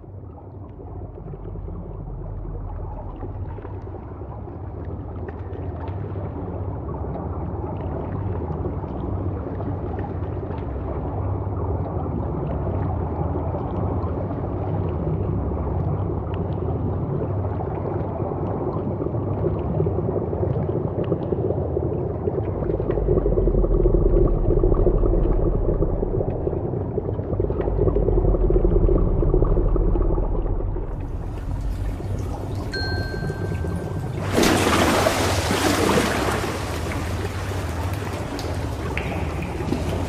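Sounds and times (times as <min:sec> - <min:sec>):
low murky drone: 0:00.0 - 0:40.0
deep bass tone: 0:22.6 - 0:34.3.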